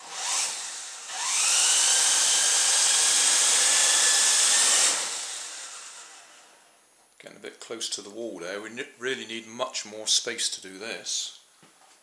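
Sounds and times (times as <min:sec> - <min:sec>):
toy helicopter motors whining: 0:00.0 - 0:06.4.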